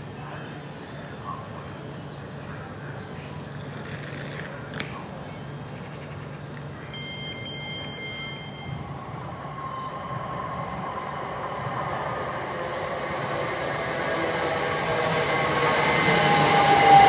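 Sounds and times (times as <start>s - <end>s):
electric train wheels rumbling on rail: 3.4s - 17.0s.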